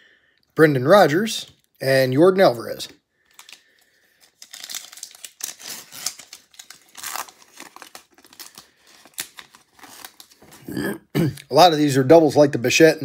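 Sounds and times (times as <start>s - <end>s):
foil wrapper tearing and crinkling: 3.3s - 10.6s.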